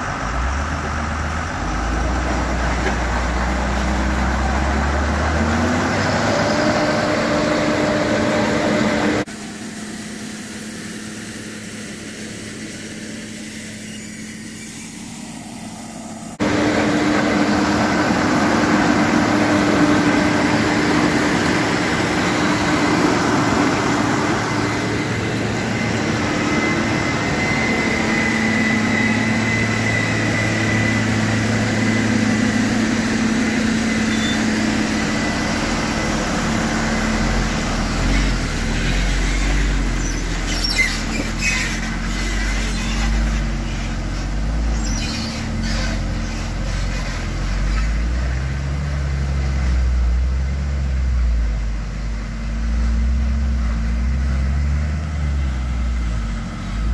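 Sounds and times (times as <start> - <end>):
heavy diesel engines running: 0.0 - 56.9
truck engine rumble: 0.0 - 56.9
high whine: 10.5 - 41.2.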